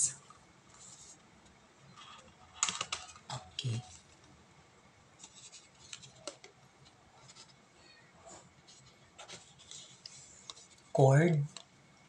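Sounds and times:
paperboard packaging rustling: 0:08.4 - 0:10.9.

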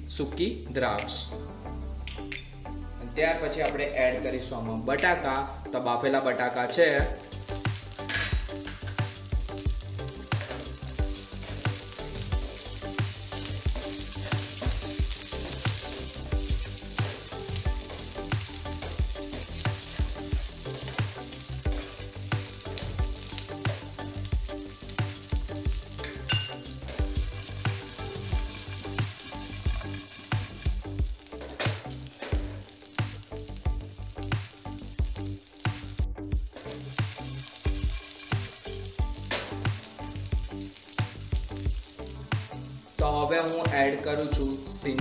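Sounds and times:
hot oil sizzling: 0:03.3 - 0:45.0
spatula scraping frying pan: 0:12.6 - 0:23.9, 0:26.1 - 0:32.7.

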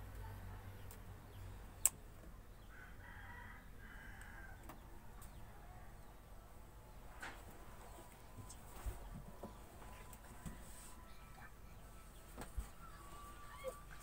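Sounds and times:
rooster crowing: 0:02.7 - 0:04.6.

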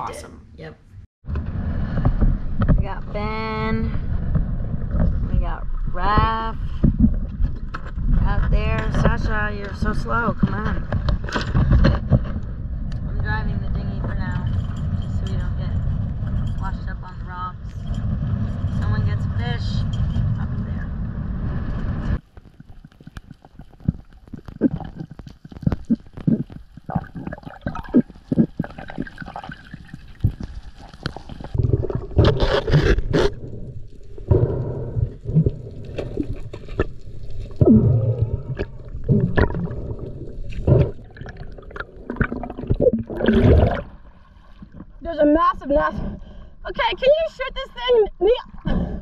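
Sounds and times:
muffled underwater sloshing: 0:21.0 - 0:46.5
crackling clicks: 0:21.7 - 0:43.9.

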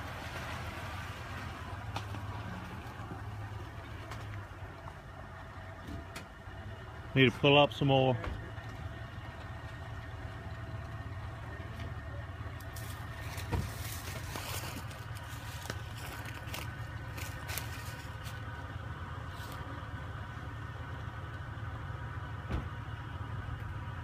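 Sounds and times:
vehicle engine running low: 0:00.0 - 0:24.0
tyres crackling and scraping: 0:08.3 - 0:21.2.

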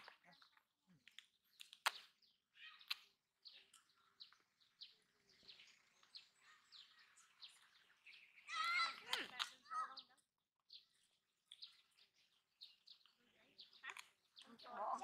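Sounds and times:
faint bird chirps: 0:00.0 - 0:15.0
sharp clicks: 0:01.1 - 0:02.2.

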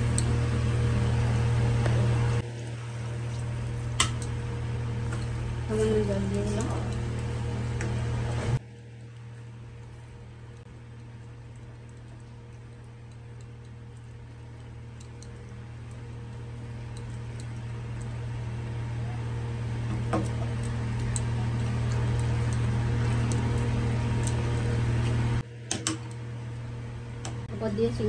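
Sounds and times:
low electrical hum: 0:00.0 - 0:28.0.

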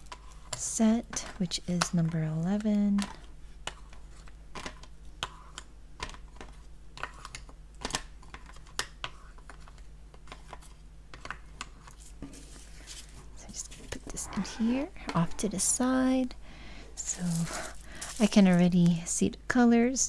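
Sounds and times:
faint rustling: 0:17.0 - 0:18.7.

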